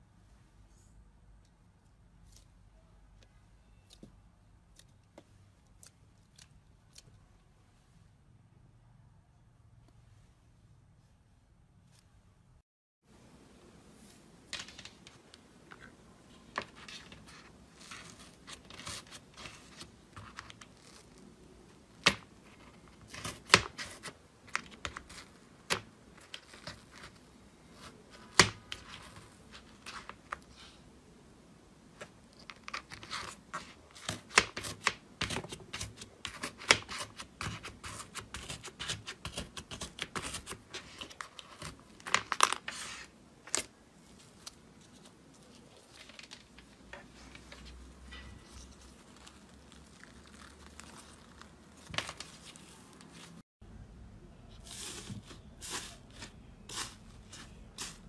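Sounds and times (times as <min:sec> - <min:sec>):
slime crust crackling: 0:48.5 - 0:53.4.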